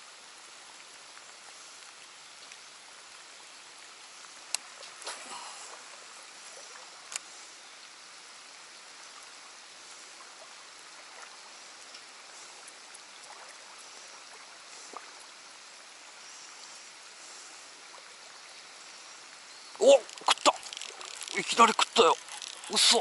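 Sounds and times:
faint outdoor hiss: 0:00.0 - 0:23.0
soft ticks: 0:04.2 - 0:04.7.

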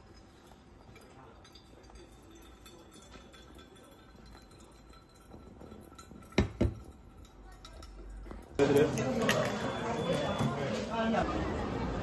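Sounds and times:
water trickling onto coffee grounds: 0:00.0 - 0:08.2
coffee draining into carafe: 0:00.3 - 0:10.4.

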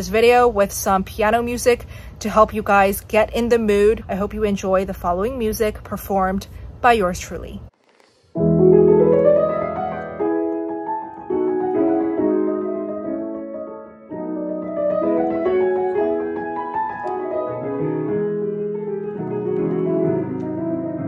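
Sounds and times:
solo piano playing chords: 0:08.4 - 0:21.0.

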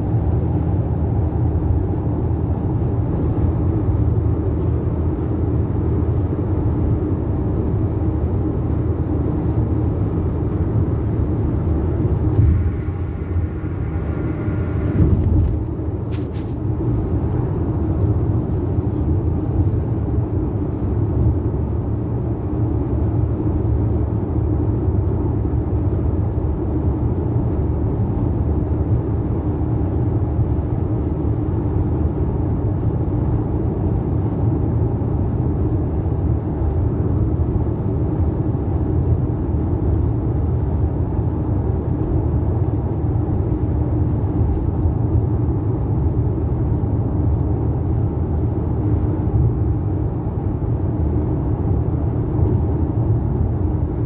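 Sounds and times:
car cabin road and engine rumble: 0:00.0 - 0:54.0.

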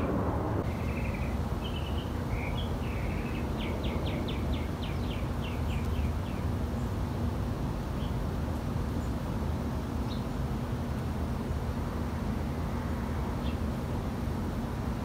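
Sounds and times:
low background rumble: 0:00.0 - 0:07.8
small bird calling: 0:00.6 - 0:07.0.

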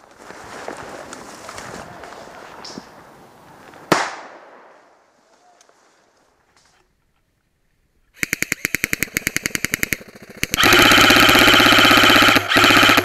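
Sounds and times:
airsoft rifle firing rapidly: 0:08.2 - 0:13.0.

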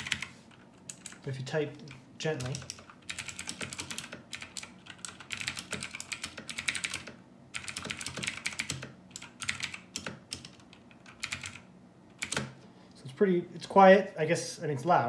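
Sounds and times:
mechanical keyboard typing: 0:00.0 - 0:01.2, 0:01.9 - 0:12.6.

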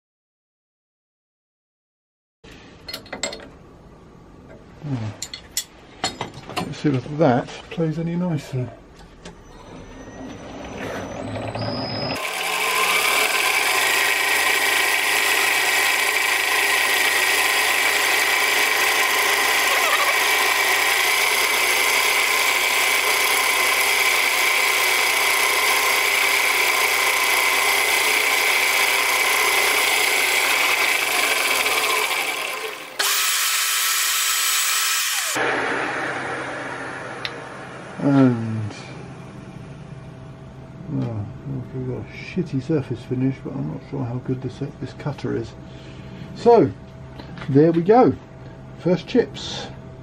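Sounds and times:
milling machine cutting metal: 0:12.1 - 0:38.0.

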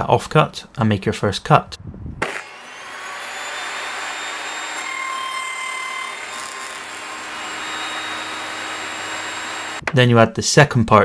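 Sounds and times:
saw blade cutting board: 0:02.2 - 0:09.9
table saw whining: 0:02.2 - 0:09.9.

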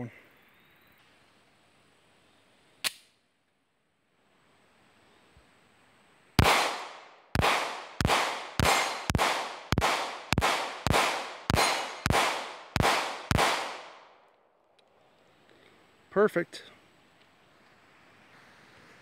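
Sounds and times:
pistol shots with ringing echo: 0:06.4 - 0:14.2.

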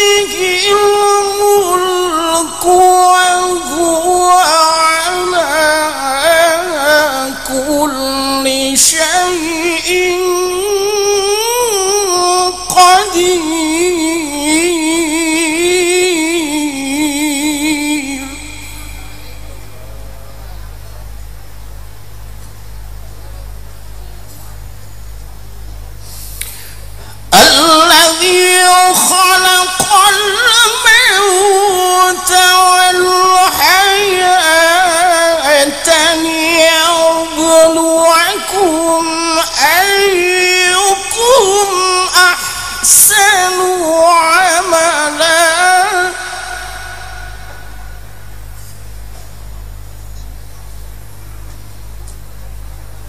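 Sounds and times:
man reciting melodically through pa: 0:00.0 - 0:20.2, 0:27.1 - 0:48.6
man chanting through a microphone: 0:00.0 - 0:21.1, 0:27.1 - 0:48.7.

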